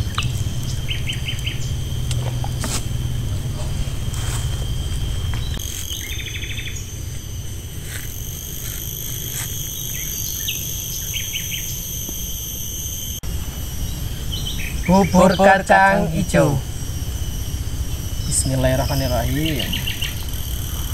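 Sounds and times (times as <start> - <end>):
insects droning: 0.0 - 20.9
bird chirps: 5.4 - 6.9, 17.9 - 20.9.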